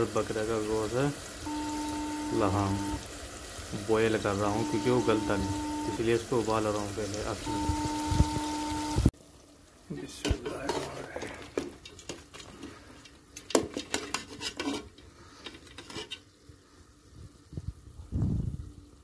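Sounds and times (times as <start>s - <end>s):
metal spatula scraping a pot: 10.3s - 16.4s.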